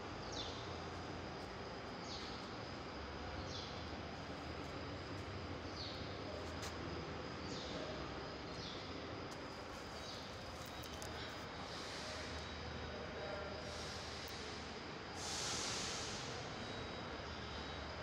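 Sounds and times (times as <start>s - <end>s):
background hiss: 13.7s - 16.6s.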